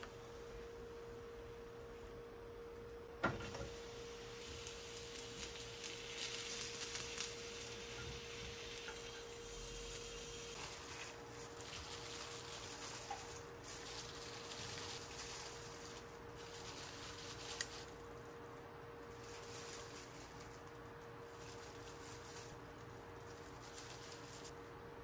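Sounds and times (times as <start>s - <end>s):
faint steady hum: 0.0s - 25.0s
mushrooms sizzling in a pan: 3.3s - 17.9s.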